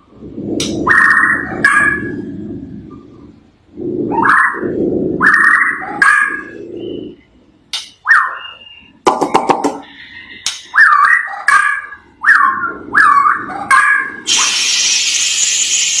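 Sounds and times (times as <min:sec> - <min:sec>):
bird singing whistled notes: 0:08.1 - 0:09.0
steady harsh hiss: 0:14.2 - 0:16.0.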